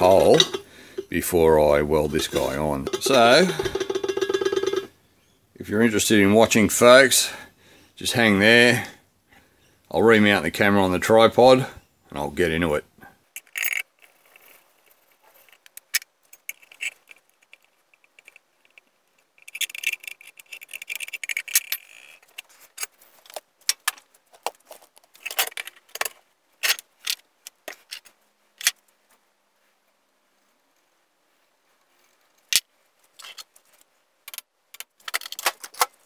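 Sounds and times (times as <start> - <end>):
tools clattering on metal bench: 0.0 - 1.2, 2.1 - 4.9
rattling: 0.0 - 4.9
sharp knocks: 2.3 - 4.9.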